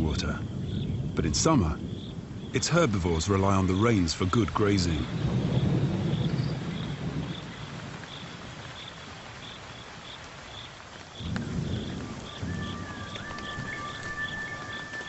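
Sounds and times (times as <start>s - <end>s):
thunder rumble: 0.0s - 9.9s, 11.0s - 15.0s
rain hissing: 0.0s - 15.0s
faint high chirp: 11.8s - 15.0s.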